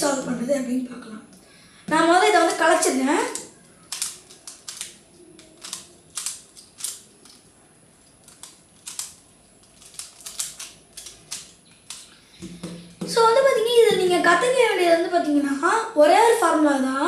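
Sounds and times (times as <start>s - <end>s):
plastic puzzle clicking: 2.5s - 12.1s.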